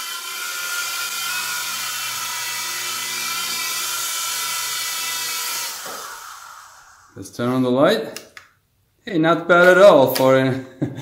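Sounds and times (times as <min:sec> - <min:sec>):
rc helicopter rotors whining: 0:00.0 - 0:07.2.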